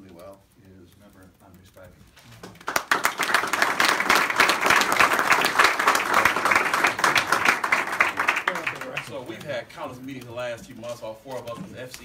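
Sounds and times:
crowd applauding: 2.4 - 9.4.

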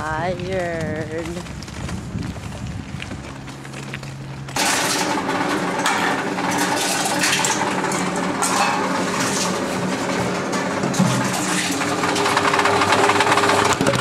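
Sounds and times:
vending machine humming: 4.4 - 14.0
bottles clinking and rattling: 4.6 - 12.6.

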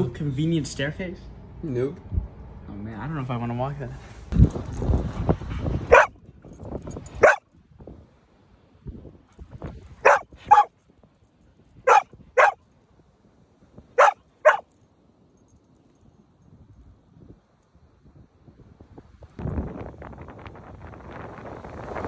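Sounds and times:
dog barking: 5.9 - 6.2, 7.2 - 7.4, 10.0 - 10.7, 11.9 - 12.6, 14.0 - 14.6.

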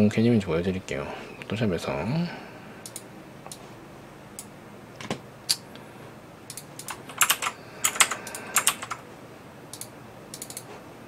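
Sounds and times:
keyboard typing: 6.5 - 9.0.

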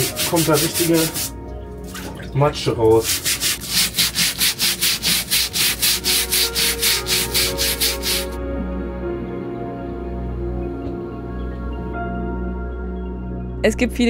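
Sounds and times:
brush scrubbing wet deck boards: 0.0 - 1.3, 2.9 - 8.4
soft ambient music: 0.0 - 14.0.

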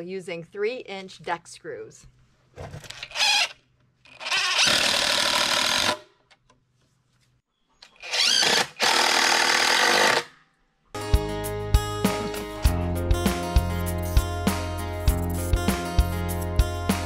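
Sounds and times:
cordless driver driving screws: 2.9 - 6.0
acoustic guitar music: 11.0 - 17.0.

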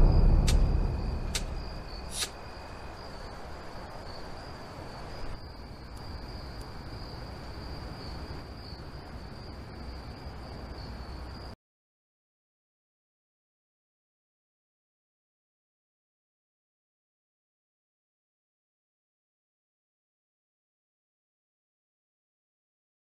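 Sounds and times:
deep low rumble: 0.0 - 2.2
cricket trill: 0.0 - 11.6.

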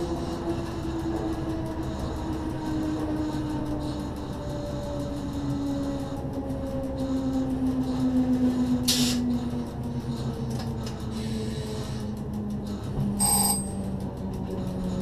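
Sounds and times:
wheels rumbling on rails: 0.0 - 15.0
high-pitched ringing tone: 13.2 - 13.9.

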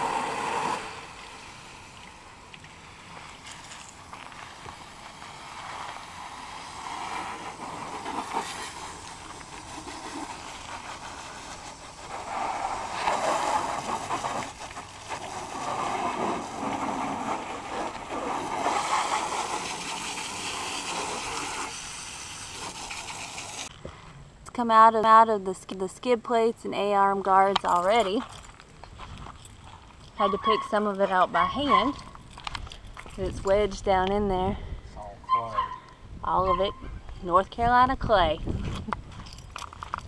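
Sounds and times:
hose spraying water: 0.0 - 23.7.

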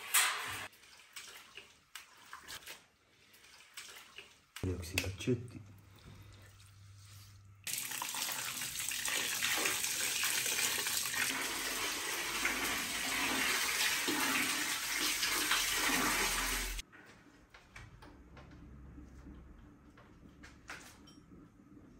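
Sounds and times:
water pouring and splashing: 0.0 - 4.7, 6.1 - 16.8.

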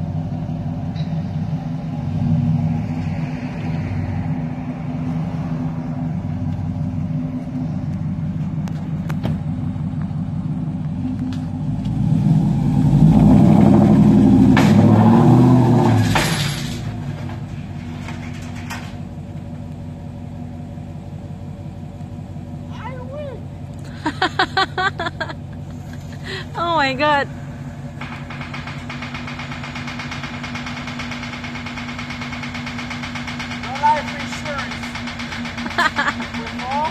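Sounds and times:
pickup truck engine revving: 0.0 - 17.5
sharp knocks: 14.5 - 15.1, 28.0 - 36.9.

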